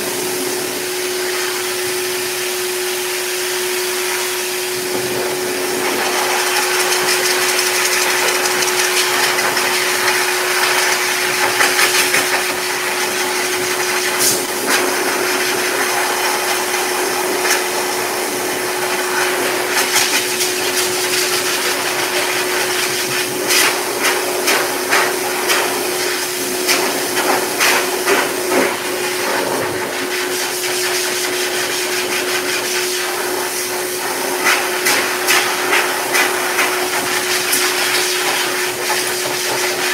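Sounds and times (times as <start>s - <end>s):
dog dryer air rushing: 0.0s - 39.9s
motor hum: 4.8s - 11.6s.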